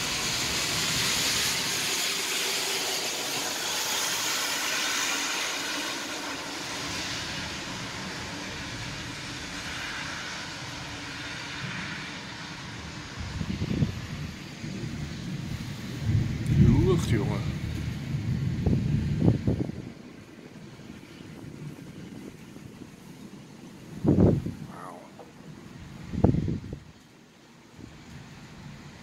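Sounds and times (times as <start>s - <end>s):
heavy rain hissing: 0.0s - 29.0s
distant thunder rumbling: 10.4s - 26.9s.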